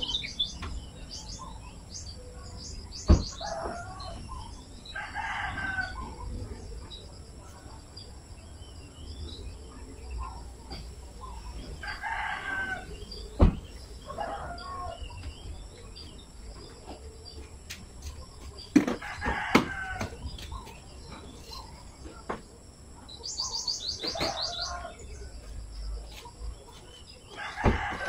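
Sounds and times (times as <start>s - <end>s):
rooster crowing: 4.9s - 6.2s, 11.8s - 13.0s, 14.1s - 15.1s, 19.0s - 20.2s, 27.3s - 28.0s
small bird chirping: 23.0s - 27.6s.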